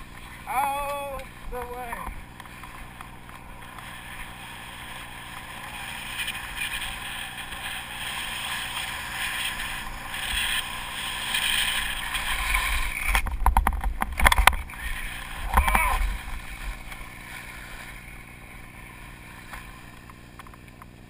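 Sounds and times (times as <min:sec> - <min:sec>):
skis scraping over snow: 0:00.0 - 0:20.1.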